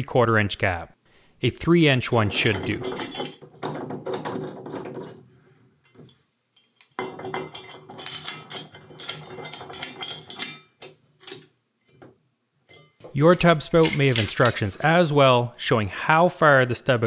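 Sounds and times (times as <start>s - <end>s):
metal spout scraping and clinking: 2.0s - 5.2s, 5.8s - 12.0s, 12.7s - 15.0s.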